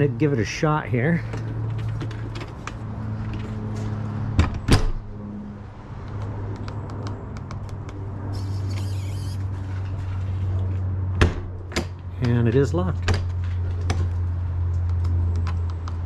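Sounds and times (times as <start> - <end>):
lock motor whirring: 8.4 - 9.4.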